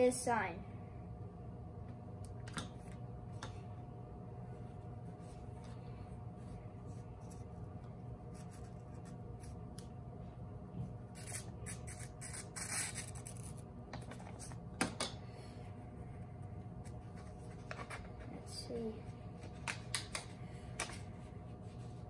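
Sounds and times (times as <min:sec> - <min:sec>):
faint room hum: 0:00.0 - 0:22.0
envelope being slit and torn: 0:11.2 - 0:13.6.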